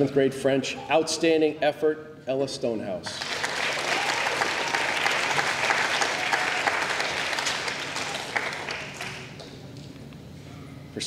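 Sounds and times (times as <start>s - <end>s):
children applauding: 3.1s - 9.4s.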